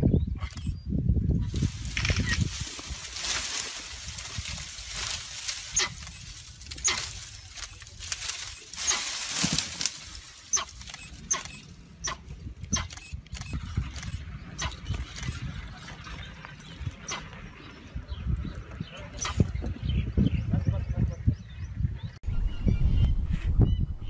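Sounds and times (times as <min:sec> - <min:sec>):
branches and leaves rustling: 0:01.3 - 0:19.8.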